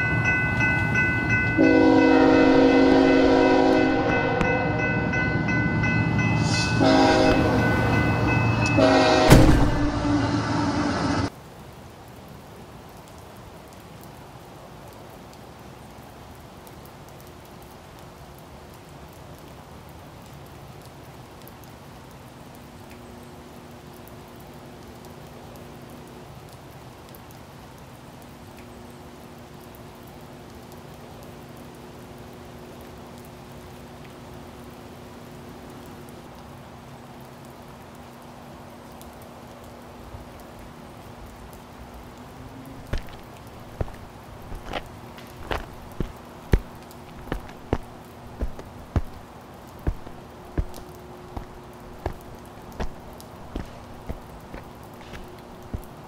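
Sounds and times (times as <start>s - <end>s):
light ticks: 28.5s - 28.7s
footsteps on gritty brick floor: 42.8s - 56.0s.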